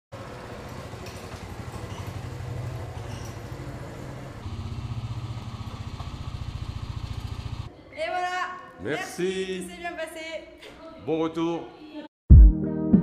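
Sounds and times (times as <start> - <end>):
motorcycle engine idling: 0.2 - 7.7.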